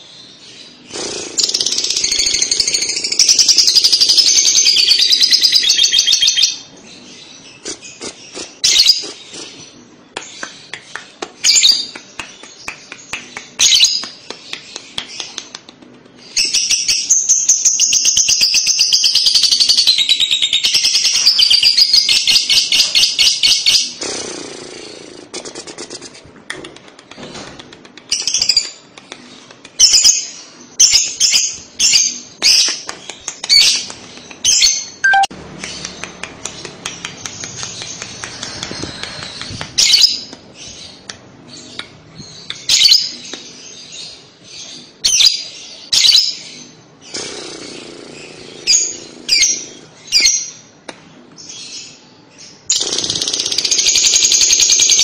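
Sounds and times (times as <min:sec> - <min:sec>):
lovebird chattering trill: 0:34.5 - 0:35.3
short sharp bird chirps: 0:35.0 - 0:35.3.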